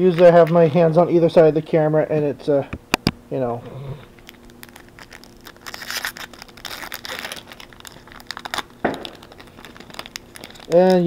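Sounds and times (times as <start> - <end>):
foil wrappers crinkling and tearing: 0.0 - 1.4, 4.1 - 11.0.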